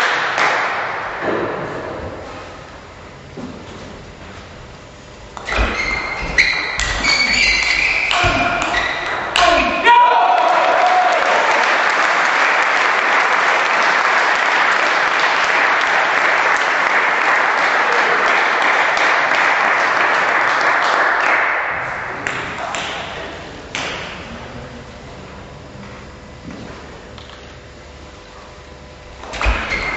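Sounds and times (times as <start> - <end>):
sharp knocks: 5.4 - 9.8
spectators applauding: 9.9 - 23.4.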